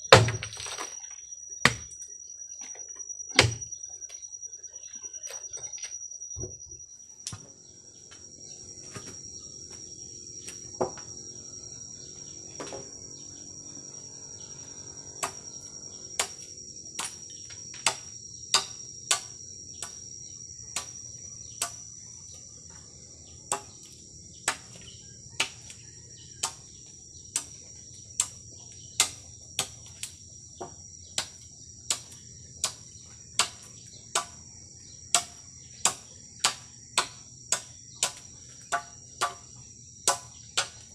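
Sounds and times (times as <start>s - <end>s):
high insect drone: 0.0s - 40.9s
machete chopping bamboo: 0.1s - 0.9s, 23.5s - 25.7s, 26.4s - 26.7s, 31.2s - 32.8s, 33.4s - 34.4s, 35.1s - 40.9s.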